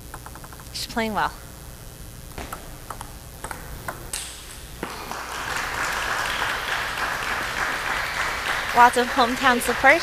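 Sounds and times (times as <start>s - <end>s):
table tennis ball clicking: 0.0s - 0.8s, 2.4s - 4.5s
crowd applauding: 4.8s - 10.0s.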